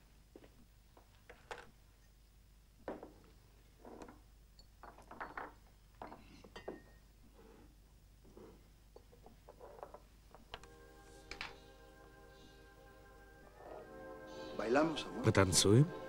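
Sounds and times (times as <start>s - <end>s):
faint small clinks and knocks: 2.8s - 7.4s, 8.5s - 10.7s.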